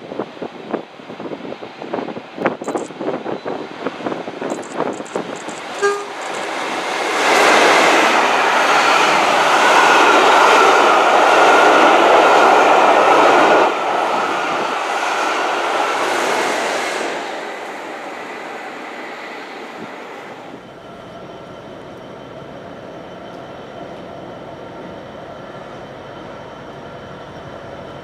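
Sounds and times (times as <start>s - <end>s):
train wheels rushing on rail: 0.0s - 28.0s
train horn toot: 5.8s - 6.3s.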